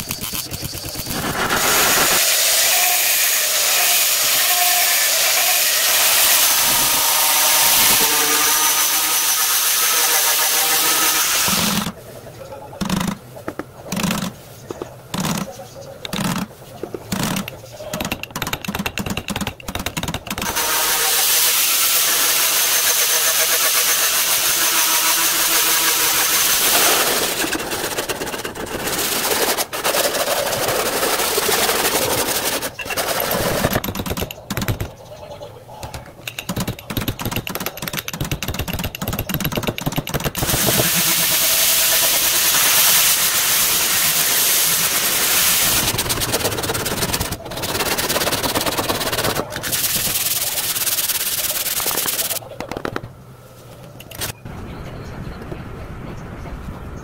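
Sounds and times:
angle grinder grinding steel: 0:00.8 - 0:11.9, 0:20.4 - 0:27.6, 0:40.4 - 0:46.0
shrinking tip buzzing: 0:00.9 - 0:11.9, 0:20.4 - 0:27.4.

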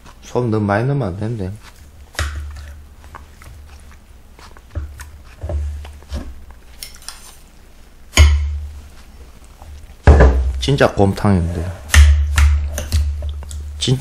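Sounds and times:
bowls thumping on wooden desk: 0:10.0 - 0:10.6.

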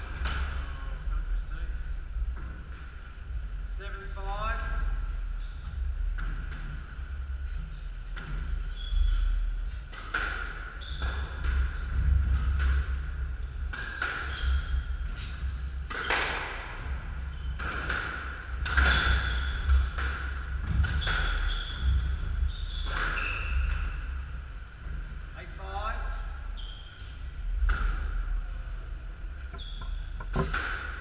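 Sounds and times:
squash ball hitting racquets and walls: 0:08.1 - 0:24.1, 0:27.5 - 0:28.3, 0:29.4 - 0:31.0
shoes squeaking on wooden floor: 0:29.5 - 0:30.5.

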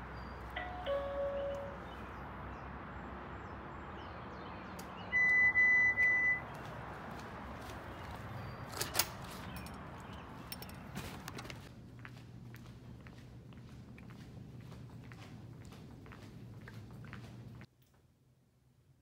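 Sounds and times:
door entry system beep: 0:00.6 - 0:01.9, 0:05.1 - 0:06.5.

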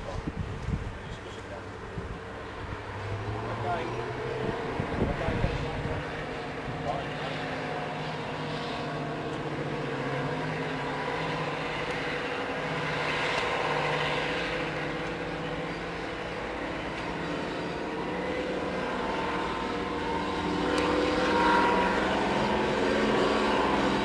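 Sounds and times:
diesel locomotive engine drone: 0:00.0 - 0:24.0.

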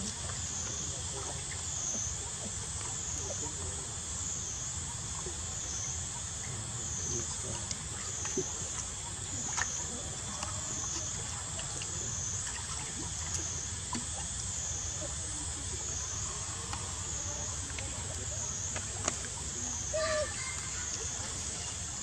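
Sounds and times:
high insect drone: 0:00.0 - 0:22.0
small water splashes: 0:00.0 - 0:22.0
faint ticks: 0:07.5 - 0:08.9, 0:09.5 - 0:14.3.

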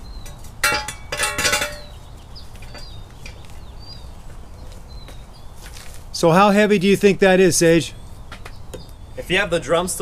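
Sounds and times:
heavy metal clanks with ringing: 0:00.6 - 0:02.0.

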